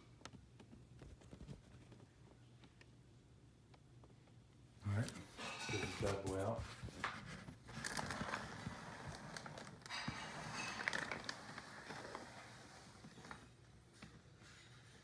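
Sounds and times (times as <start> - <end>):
cardboard rustling and scraping: 5.2 - 15.0.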